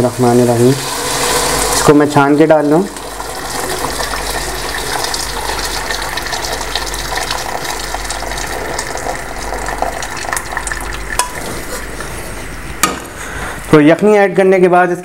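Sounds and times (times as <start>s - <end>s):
liquid pouring through a strainer: 0.7s - 11.4s.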